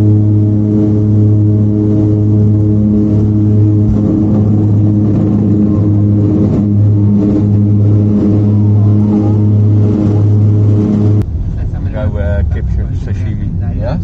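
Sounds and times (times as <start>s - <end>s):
propeller aircraft engines droning: 0.0s - 14.0s.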